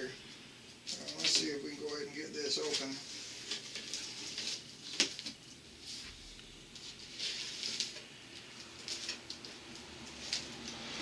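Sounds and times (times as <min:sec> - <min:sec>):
tape and cardboard rustling: 0:02.6 - 0:10.9.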